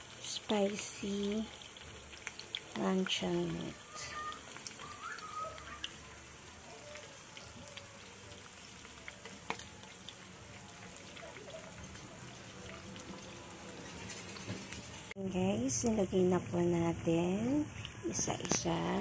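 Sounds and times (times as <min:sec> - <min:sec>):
meat sizzling in a frying pan: 0:00.0 - 0:16.3
oil popping: 0:01.3 - 0:15.2.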